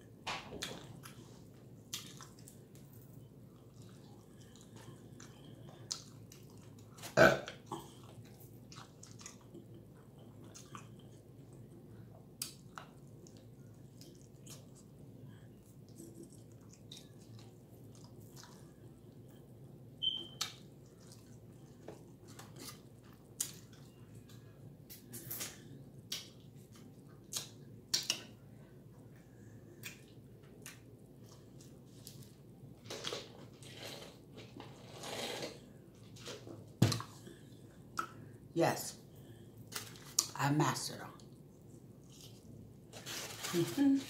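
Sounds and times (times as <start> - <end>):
chewing and biting smacks: 0.6 - 7.2, 7.8 - 15.0, 15.6 - 19.4
loud burp: 7.1 - 7.8.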